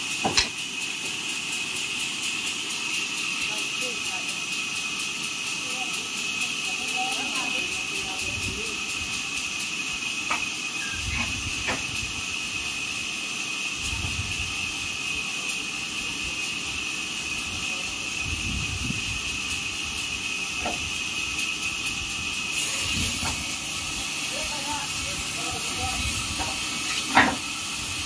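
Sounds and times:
sawmill machinery hiss and whine: 0.0s - 28.0s.

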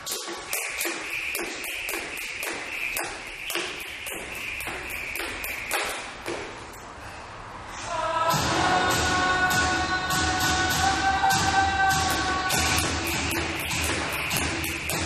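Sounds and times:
jump rope slapping concrete: 0.0s - 6.7s, 12.1s - 15.0s
rope whirring: 0.0s - 6.8s, 12.1s - 15.0s.

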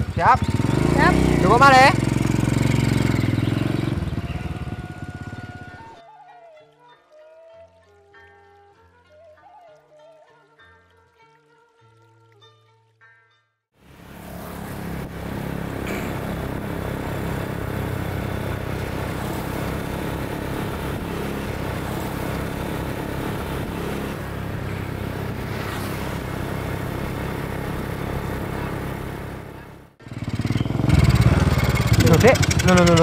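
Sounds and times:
motorcycle engine running: 0.0s - 6.0s, 13.9s - 33.0s.

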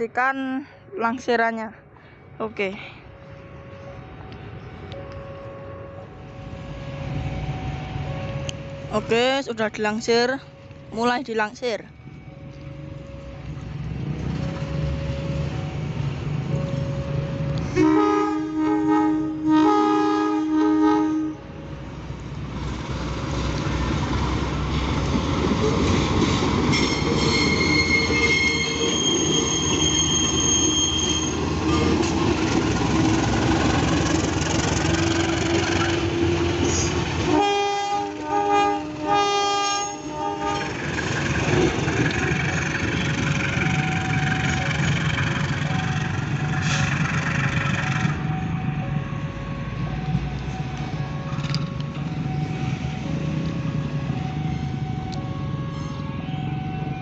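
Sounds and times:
train running past: 0.0s - 57.0s
locomotive horn blasts: 17.6s - 21.6s, 35.0s - 40.9s
wheel squeal on rails: 26.7s - 32.2s, 34.8s - 37.1s.

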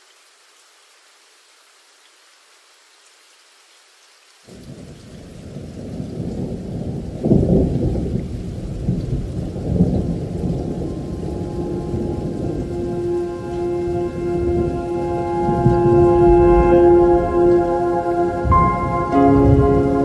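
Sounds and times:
faint rain hiss: 0.0s - 20.0s
low thunder rumble: 4.6s - 20.0s.

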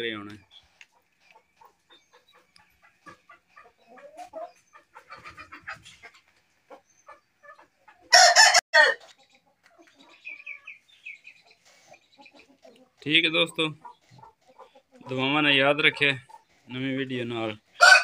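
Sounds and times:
roosters clucking softly: 0.2s - 8.2s, 8.9s - 18.0s
rooster crowing: 8.1s - 9.0s, 17.8s - 18.0s.

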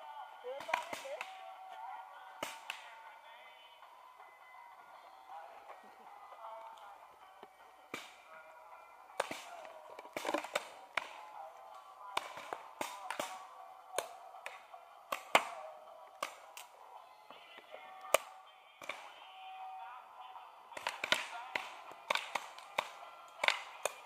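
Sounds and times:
paintball markers popping: 9.2s - 11.2s, 20.8s - 24.0s.

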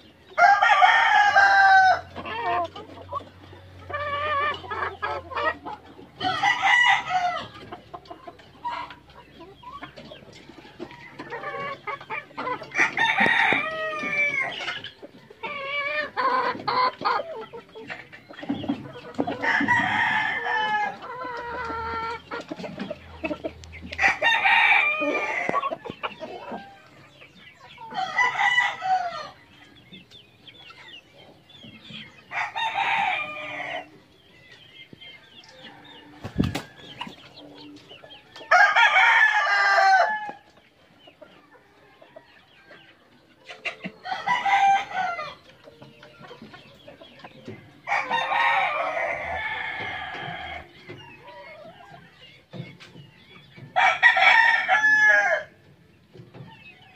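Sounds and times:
roosters crowing: 0.0s - 7.7s, 10.6s - 16.9s, 19.2s - 22.4s, 23.9s - 27.2s, 27.8s - 29.6s, 32.2s - 34.0s, 35.4s - 40.8s, 41.8s - 45.4s, 47.7s - 51.7s, 53.7s - 55.6s
chicken calls: 0.0s - 56.9s.

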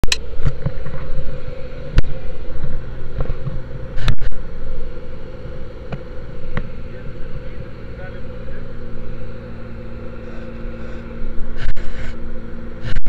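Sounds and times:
vehicle engine drone: 0.0s - 13.0s
camera rubbing on clothing: 10.2s - 12.2s.

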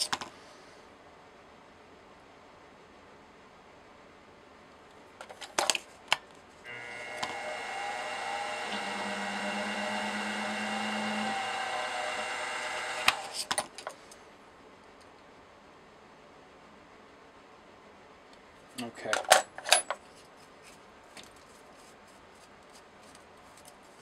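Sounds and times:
milling machine motor running: 6.7s - 13.5s
countersink cutting metal: 6.7s - 13.6s.

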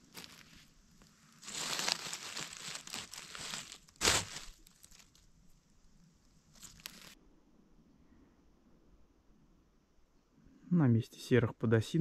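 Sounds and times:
footsteps crunching through dry litter: 0.0s - 5.2s, 6.5s - 7.2s.

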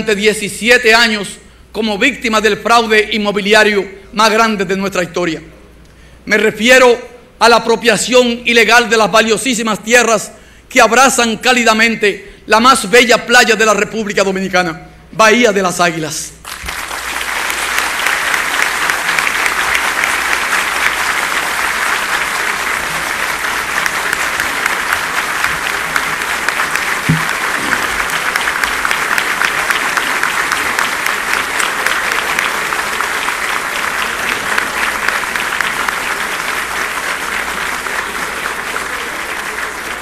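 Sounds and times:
large crowd applauding: 16.4s - 40.0s.

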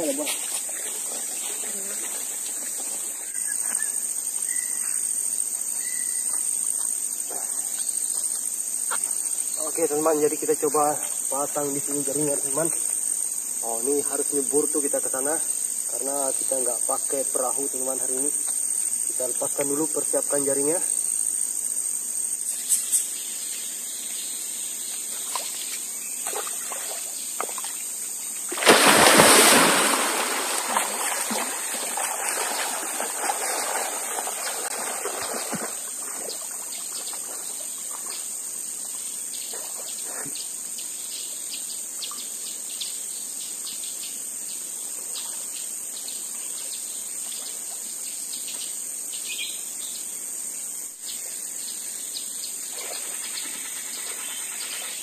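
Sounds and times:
insects buzzing: 0.0s - 55.0s
small splashes: 25.1s - 27.9s, 28.5s - 38.2s
loud splash into water: 28.5s - 35.8s
water sloshing: 28.5s - 38.2s.

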